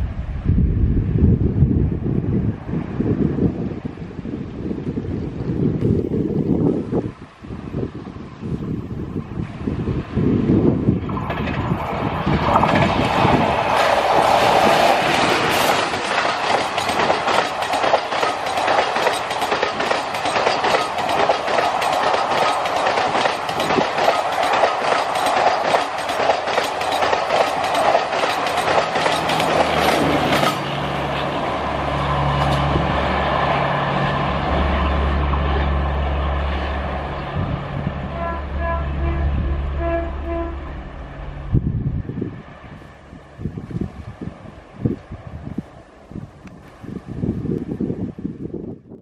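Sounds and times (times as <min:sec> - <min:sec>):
train low rumble: 0:00.0 - 0:49.0
train wheels clattering over rail joints: 0:10.9 - 0:31.5.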